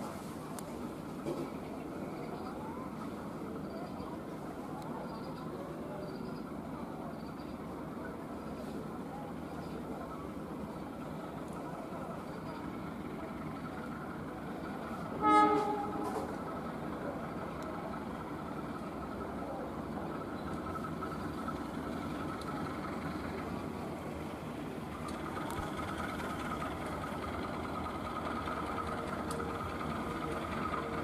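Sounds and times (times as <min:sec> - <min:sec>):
diesel locomotive engine drone: 0:00.0 - 0:31.0
horn tone: 0:15.2 - 0:16.4.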